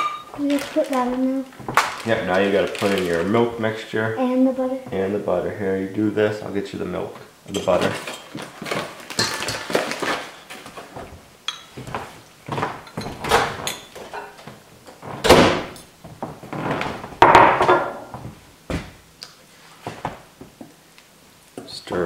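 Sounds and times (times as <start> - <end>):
door shutting with a thud: 15.1 - 15.8.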